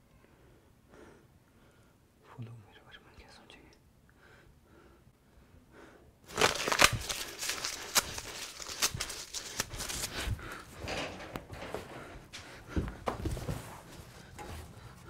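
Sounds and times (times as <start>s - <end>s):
paper rustling and crumpling: 6.3s - 10.7s.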